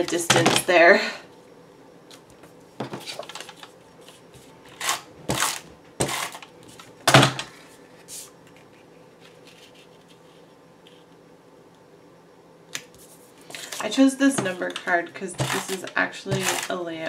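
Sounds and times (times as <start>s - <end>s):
tape runner rasping on paper: 15.4s - 16.8s.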